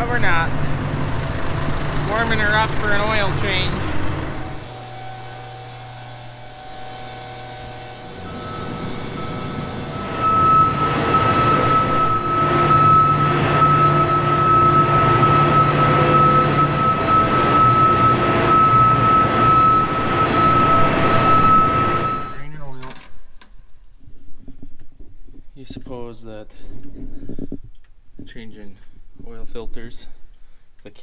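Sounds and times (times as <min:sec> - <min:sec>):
combine diesel engine running: 0:00.0 - 0:22.5
steady high whine: 0:00.0 - 0:23.4.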